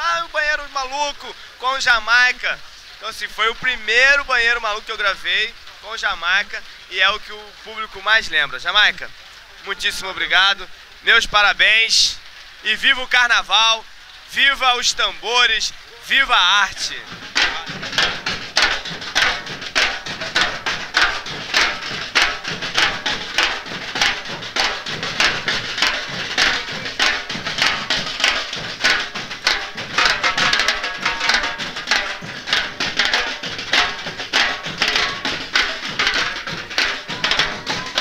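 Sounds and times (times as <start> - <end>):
snare drums: 16.1 - 38.0
bass drums: 16.4 - 38.0.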